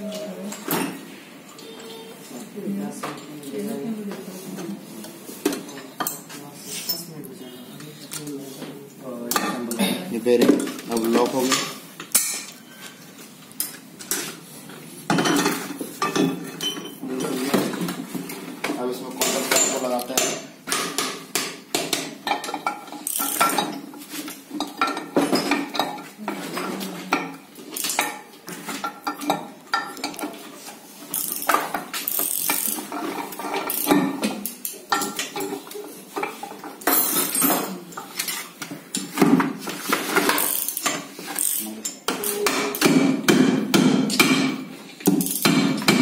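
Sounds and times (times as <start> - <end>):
metal parts clinking and knocking: 22.3 - 23.8, 31.1 - 34.2, 45.0 - 45.5.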